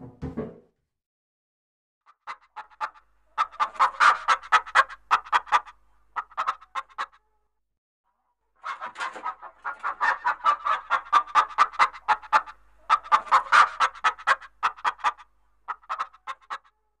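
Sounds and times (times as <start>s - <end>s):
chicken clucking: 2.2s - 7.4s, 8.6s - 16.9s.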